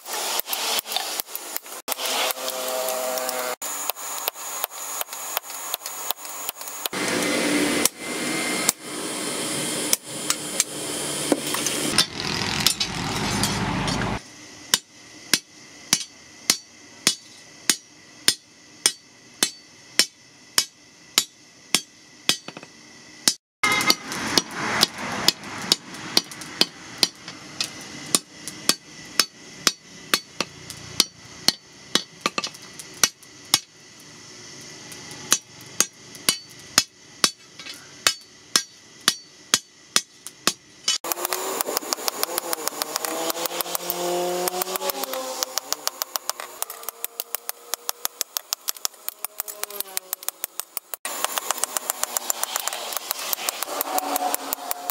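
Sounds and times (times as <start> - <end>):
hammer striking metal on anvil: 11.9 - 14.1, 14.7 - 33.7, 35.3 - 37.4, 38.0 - 49.2.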